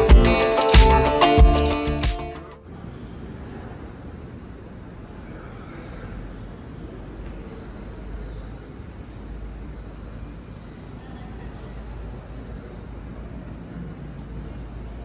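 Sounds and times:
background noise: 0.0s - 15.0s.

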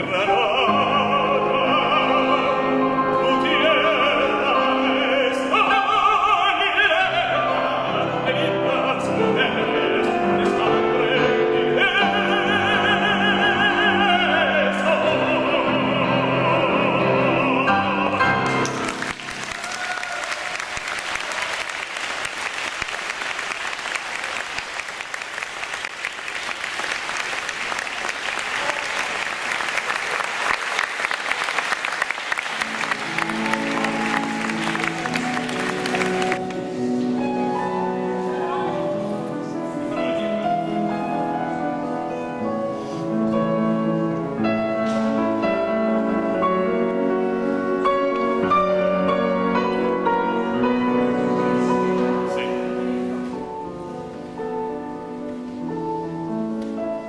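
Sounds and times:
man singing opera: 0.0s - 20.2s, 32.6s - 54.3s
grand piano accompaniment: 0.0s - 57.0s
audience applauding: 18.4s - 37.0s.

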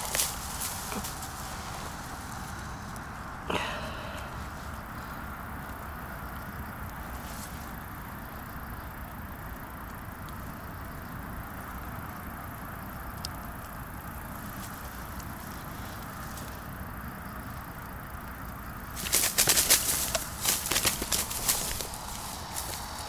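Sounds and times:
low outdoor background rumble: 0.0s - 23.0s
faint ticks: 5.6s - 23.0s.

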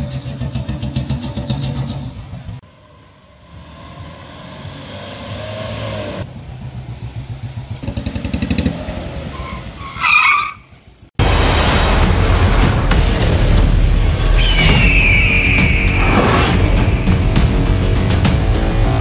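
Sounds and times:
vehicle engine revving: 0.0s - 9.6s, 16.0s - 19.0s
tyres squealing: 9.1s - 10.8s
loud music: 11.4s - 19.0s.

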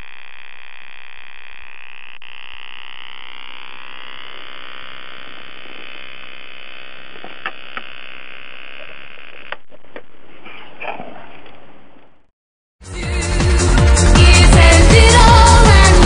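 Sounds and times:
sharp electric clicks: 0.0s - 10.1s
high-voltage arc buzzing: 0.0s - 10.2s.

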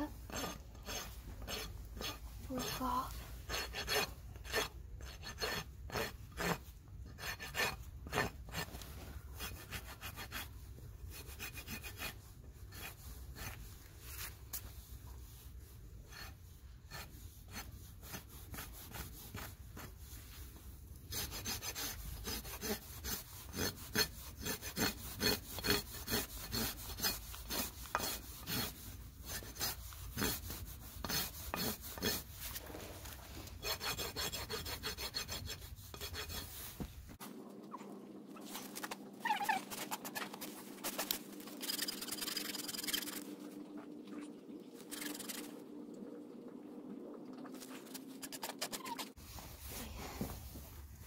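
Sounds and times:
hoof rasp filing strokes: 0.0s - 37.2s, 47.8s - 49.4s.

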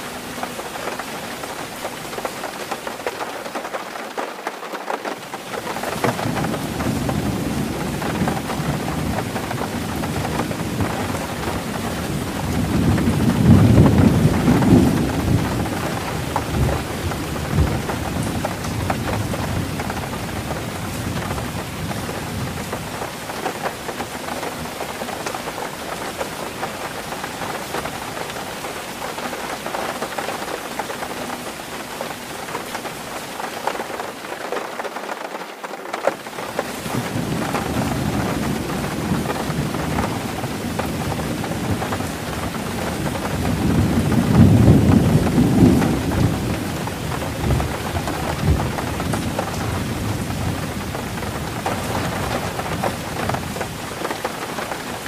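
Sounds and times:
heavy rain on a tin roof: 0.0s - 55.0s
thunder rolling: 5.4s - 28.3s, 36.4s - 54.2s.

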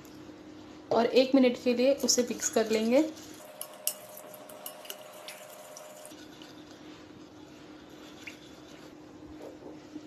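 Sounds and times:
liquid stirring: 2.1s - 9.6s.

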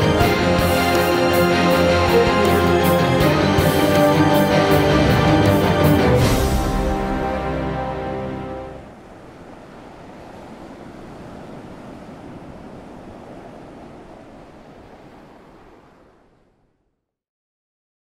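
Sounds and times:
waves on open water: 0.0s - 16.9s
wind: 0.0s - 17.1s.

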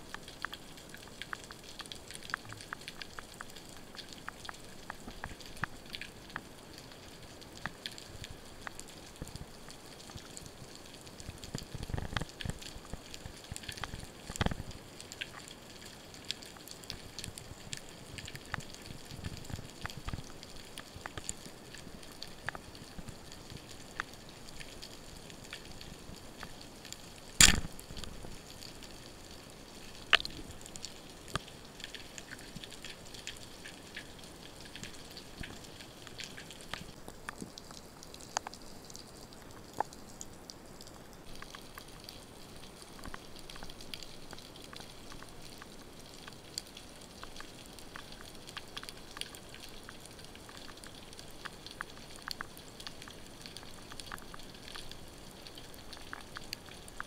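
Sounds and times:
underwater crackle of ticks: 0.0s - 57.0s
speargun firing underwater: 27.4s - 27.8s.

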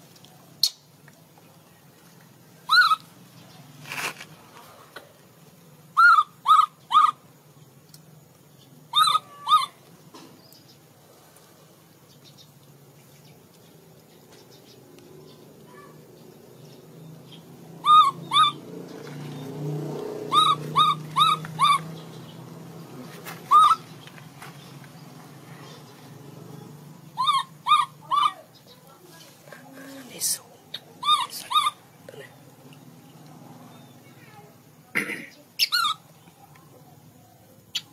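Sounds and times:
baby monkey high-pitched calls: 2.6s - 3.2s, 5.9s - 7.3s, 8.9s - 9.9s, 17.3s - 18.8s, 20.2s - 22.4s, 23.4s - 24.0s, 27.1s - 28.7s, 30.7s - 32.0s, 35.6s - 36.1s.

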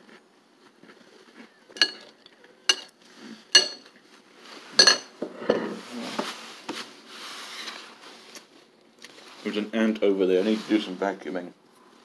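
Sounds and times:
metal spoon clinking on bowl: 1.8s - 2.1s, 2.7s - 2.9s, 3.6s - 3.9s
soft rustling: 5.8s - 12.0s.

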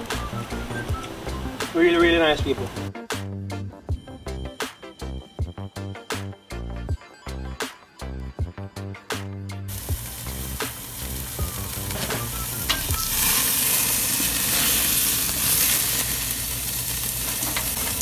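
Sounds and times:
background music: 0.0s - 18.0s
meat sizzling over charcoal: 9.7s - 18.0s.

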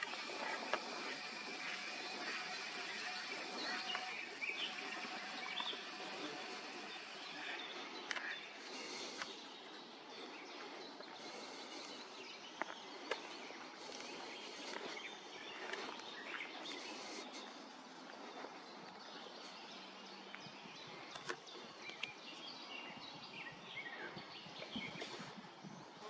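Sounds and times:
sharp clicks: 0.0s - 8.3s
steady background hiss: 0.0s - 8.7s
bird chirps and calls: 0.0s - 17.6s.

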